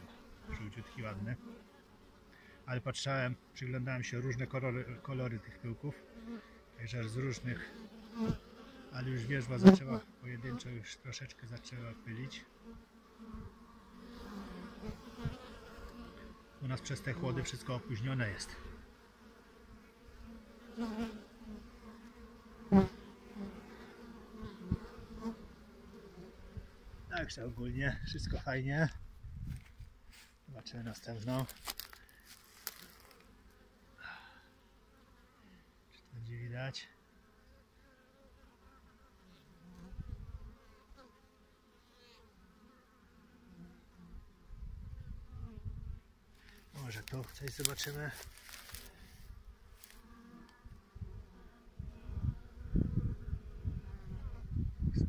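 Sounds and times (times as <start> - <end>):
bees buzzing: 3.3 - 27.3, 31.0 - 35.7, 46.3 - 54.6.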